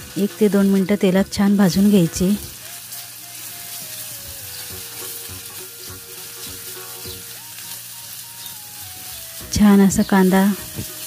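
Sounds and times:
onion frying in hot oil: 0.0 - 11.0
spatula stirring in pan: 1.7 - 9.6.

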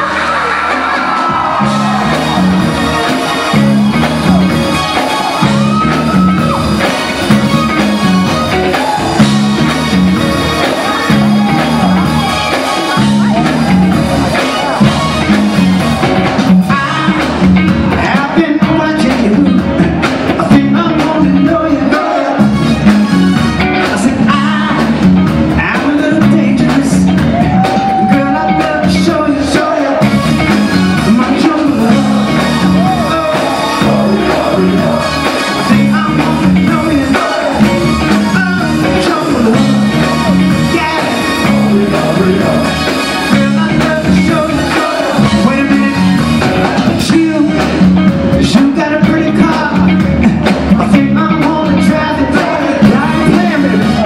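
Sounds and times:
person singing: 0.0 - 22.6, 23.8 - 54.0
funk band playing: 0.0 - 54.0.

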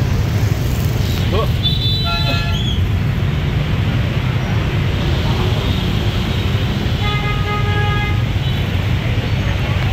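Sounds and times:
scooter and motorbike engines rumbling: 0.0 - 9.9
vehicle horn: 1.7 - 2.6, 7.0 - 8.6.

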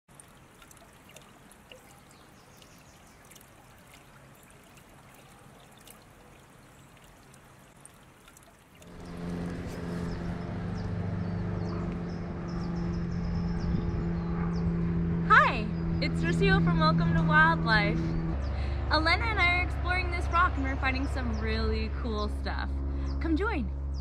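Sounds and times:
creek trickling over stones: 0.1 - 11.0
steady low hum: 8.8 - 24.0.

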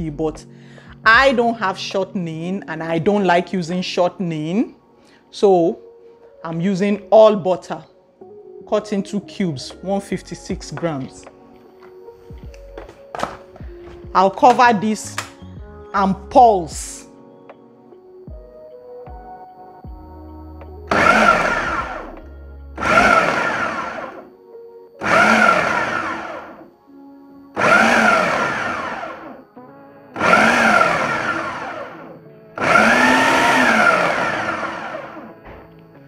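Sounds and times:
food processor pulsing: 20.9 - 22.2, 22.8 - 24.3, 25.0 - 26.7, 27.6 - 29.4, 30.2 - 35.4.

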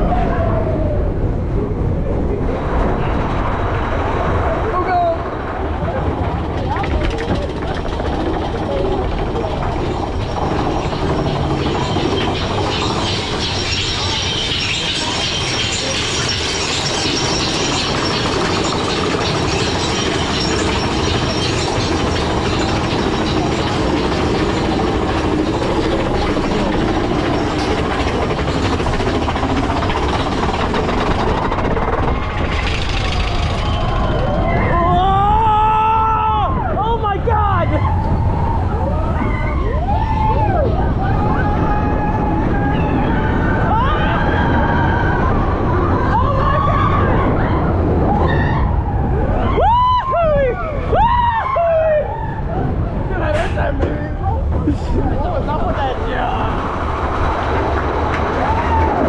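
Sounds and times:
wheels rumbling on track: 0.0 - 59.0
wind noise: 0.0 - 59.0
lift chain clattering with clicks: 6.4 - 34.3.

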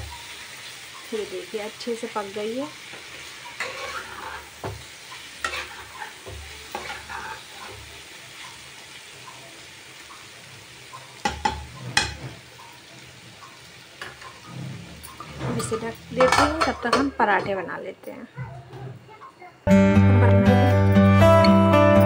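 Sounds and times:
light sizzle: 0.0 - 18.3
spatula scraping frying pan: 2.7 - 8.7, 10.9 - 17.2.

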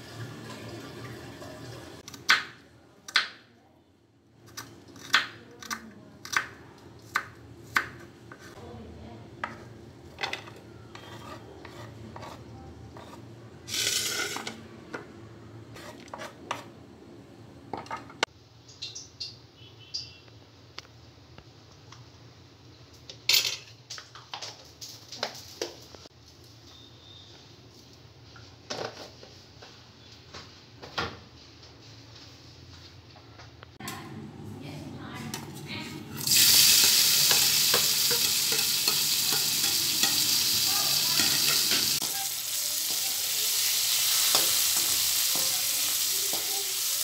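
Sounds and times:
knife blade scraping board: 11.0 - 12.4.

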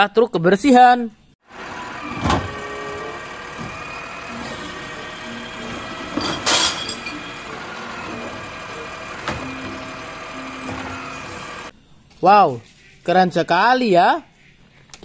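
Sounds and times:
garbage truck running: 1.4 - 11.7
hydraulic arm lifting: 1.5 - 11.7
trash cart clattering: 1.5 - 11.7.

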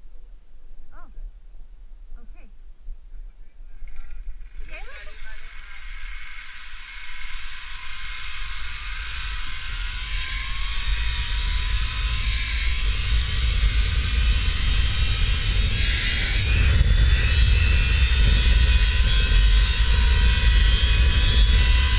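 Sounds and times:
wind buffeting microphone: 0.8 - 21.9
zipline pulleys whirring on cable: 4.4 - 21.9.

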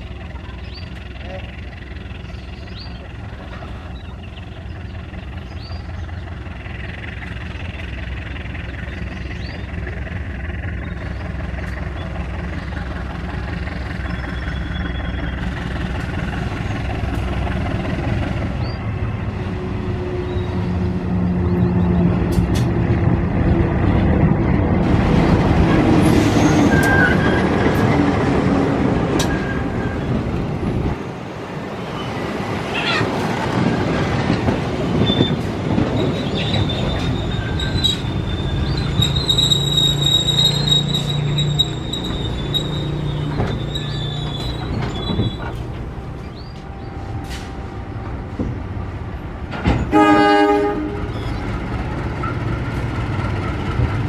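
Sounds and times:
locomotive engine rumble: 0.0 - 54.0
train wheels clattering on rails: 0.1 - 19.3, 22.0 - 31.0, 32.1 - 54.0
wheel squeal: 14.0 - 15.6, 26.0 - 28.1, 29.2 - 30.2, 34.8 - 46.5.

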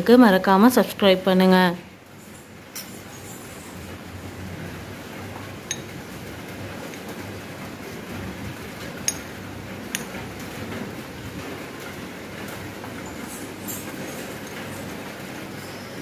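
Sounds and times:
spoon clinking ceramic bowl: 5.7 - 5.9.

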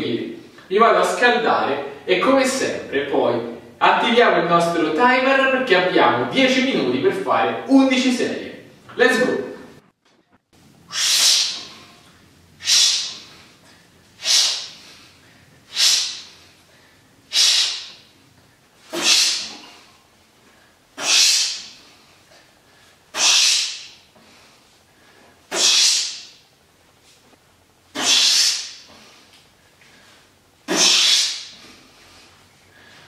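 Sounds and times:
man's forceful breaths: 10.9 - 26.4, 28.0 - 33.0.

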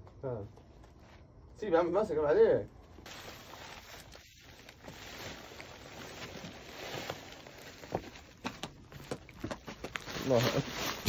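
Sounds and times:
steady background hiss: 0.0 - 11.0
plastic sack rustling: 3.0 - 11.0.

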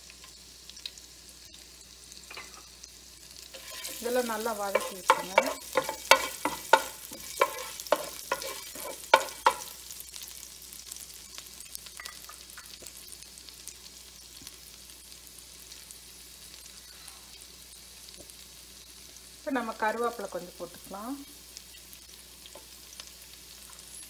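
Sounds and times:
oil sizzling and popping: 0.0 - 24.0
spatula scraping a frying pan: 3.5 - 9.8.

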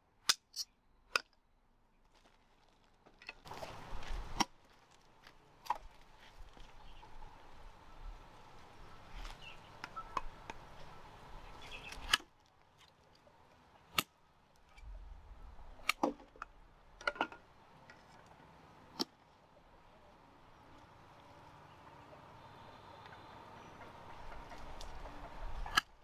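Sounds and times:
rustling: 2.0 - 17.0.

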